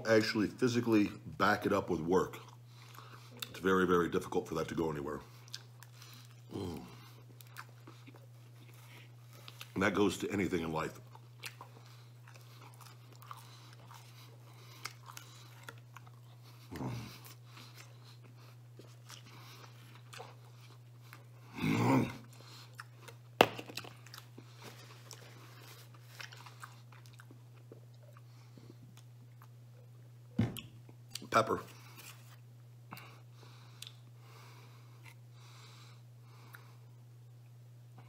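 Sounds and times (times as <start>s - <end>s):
steady low hum: 0.0s - 38.0s
man chewing crunchy food: 1.6s - 4.3s, 5.2s - 30.0s.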